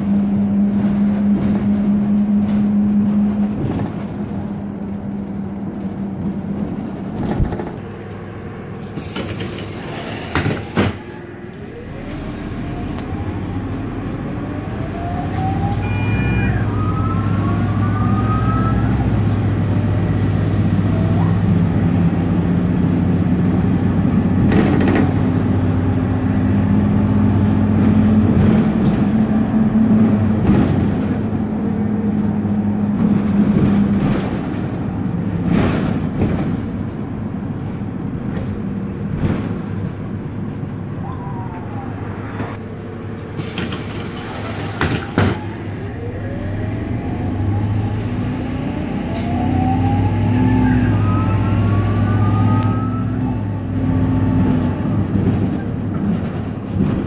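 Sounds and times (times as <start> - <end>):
bus engine drone: 0.0 - 57.0
rising whines: 11.6 - 19.4, 45.4 - 55.0.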